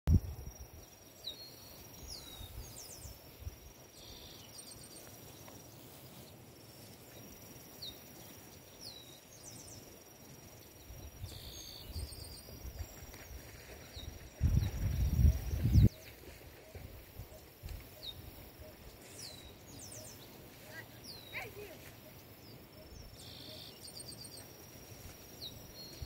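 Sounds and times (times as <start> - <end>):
birds chirping: 0.5 - 26.0
insect trilling: 14.4 - 25.8.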